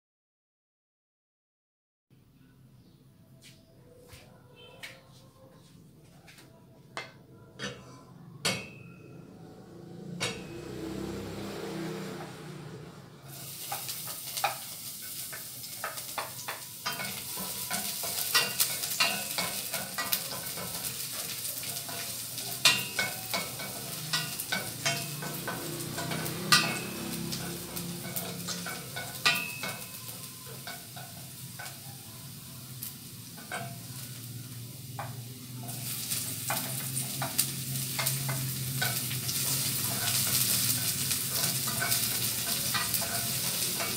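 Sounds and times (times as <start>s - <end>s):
food sizzling in a frying pan: 9.9s - 43.9s
wooden spatula scraping a pan: 35.6s - 43.9s.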